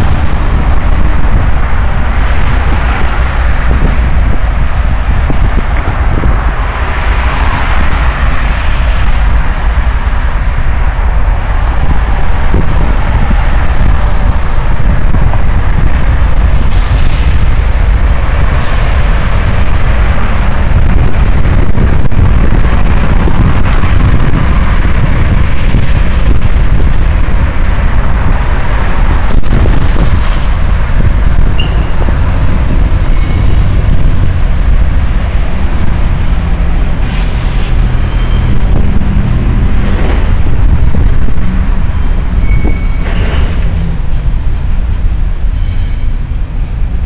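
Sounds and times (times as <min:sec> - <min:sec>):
cars passing: 0:00.0 - 0:47.0
wind rumble on microphone: 0:00.0 - 0:47.0.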